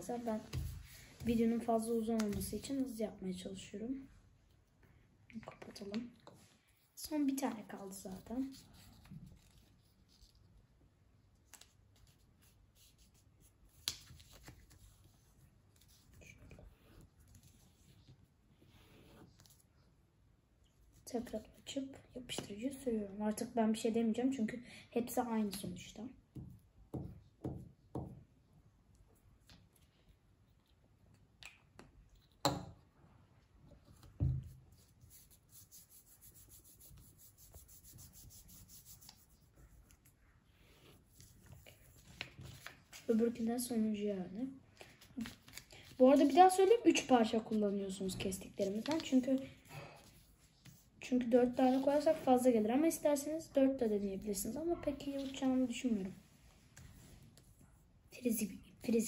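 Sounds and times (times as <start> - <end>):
paper rustling being folded: 7.6 - 10.7, 11.4 - 18.2, 40.9 - 43.5, 44.8 - 52.5
paper rubbed by hand: 34.7 - 43.2.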